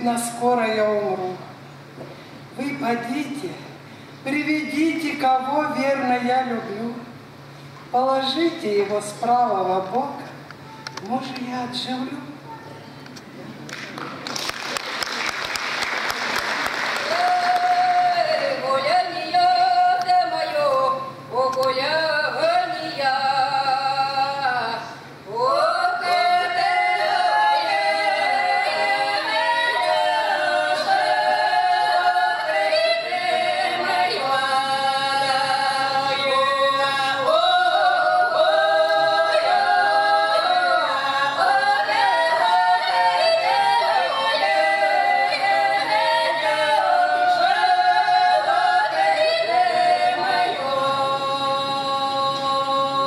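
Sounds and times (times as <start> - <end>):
women singing a cappella: 17.0 - 53.0.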